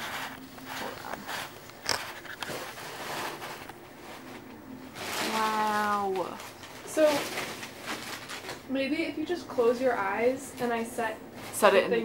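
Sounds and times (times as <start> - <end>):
packaging rustling and crinkling: 0.0 - 8.7.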